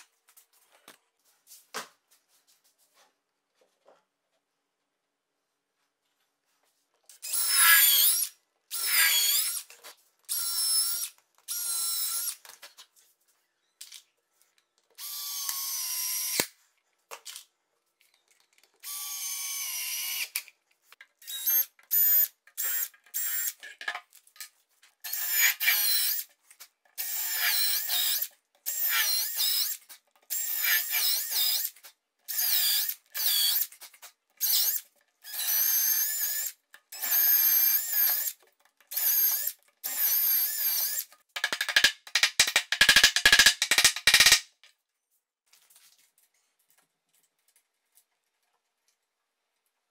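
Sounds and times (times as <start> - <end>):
cordless drill whining: 15.0 - 16.4, 34.4 - 38.3.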